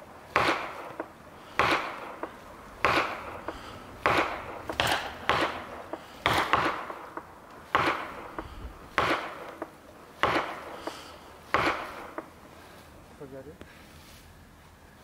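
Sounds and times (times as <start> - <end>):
axe strikes on wood: 0.3 - 12.3.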